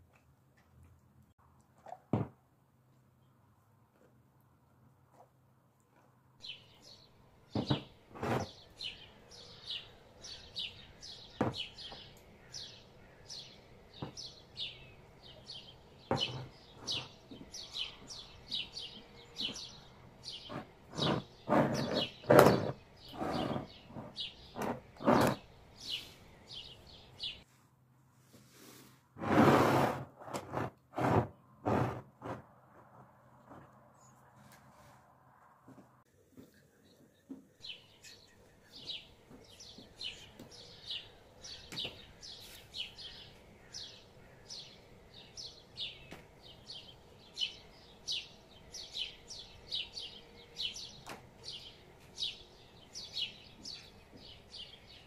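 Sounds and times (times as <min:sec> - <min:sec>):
bird chirping: 0:06.4 - 0:27.4, 0:36.8 - 0:55.0.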